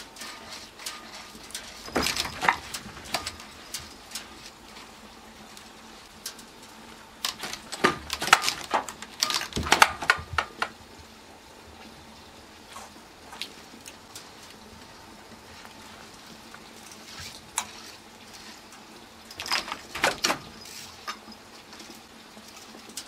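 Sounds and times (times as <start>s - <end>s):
cat claws scraping mesh screen: 0.0s - 4.8s
window screen rattling: 0.0s - 11.0s, 13.6s - 23.0s.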